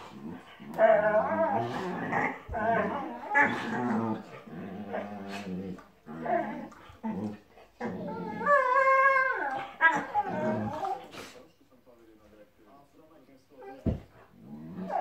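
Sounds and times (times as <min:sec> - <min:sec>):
dogs growling: 0:00.0 - 0:11.4, 0:13.9 - 0:15.0
dog whining: 0:07.8 - 0:11.1.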